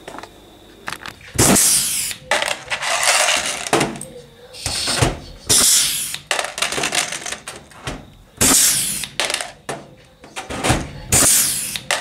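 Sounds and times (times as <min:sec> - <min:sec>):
rivet gun air hiss: 0:01.4 - 0:02.2, 0:04.6 - 0:06.3, 0:08.4 - 0:09.2, 0:11.1 - 0:11.9.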